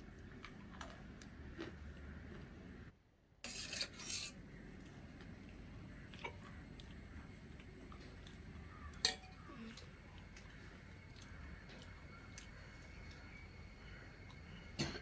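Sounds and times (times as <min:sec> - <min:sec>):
metal spoon scraping a pot: 0:03.4 - 0:04.4.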